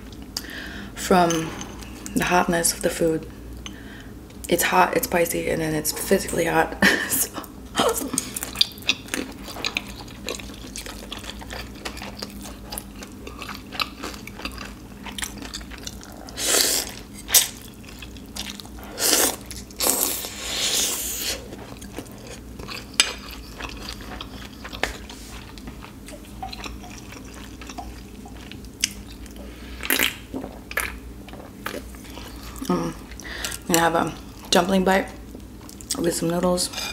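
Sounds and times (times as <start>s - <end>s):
chewing with wet clicks: 8.1s - 18.8s, 21.5s - 33.6s, 35.3s - 36.0s.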